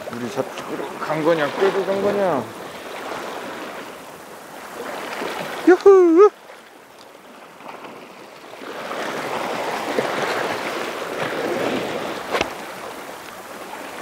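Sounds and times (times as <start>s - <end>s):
sea water washing against rocks: 0.0s - 14.0s.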